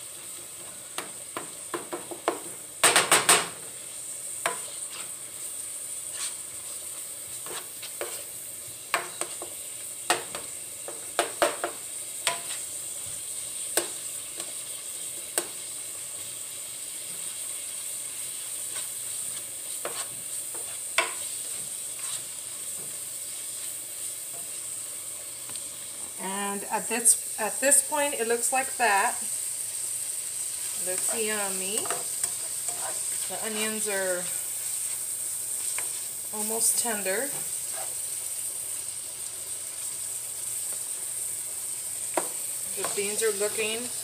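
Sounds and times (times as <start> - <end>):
meat sizzling in a pan: 0.0 - 44.0
utensil knocking and scraping pan: 19.8 - 22.9.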